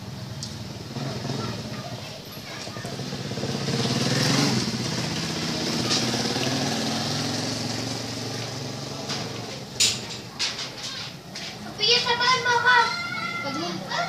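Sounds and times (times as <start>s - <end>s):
vehicle engine running: 0.0s - 10.2s.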